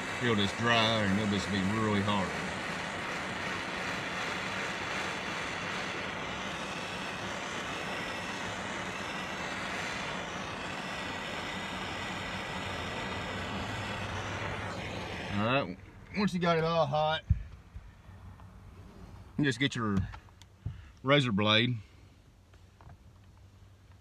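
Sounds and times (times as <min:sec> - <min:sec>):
blowtorch hissing: 0:00.0 - 0:16.9.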